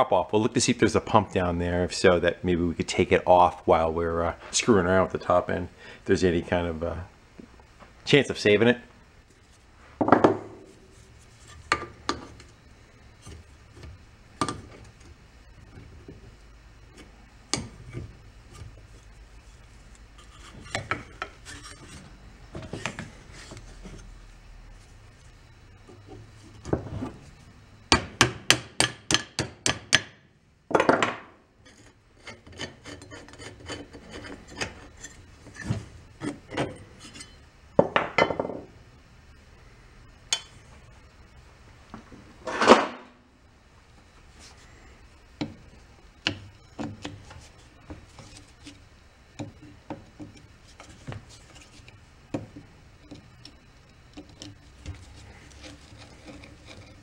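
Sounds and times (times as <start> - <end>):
hand tools scraping metal: 20.1 - 22.1, 31.6 - 37.4, 53.4 - 57.0.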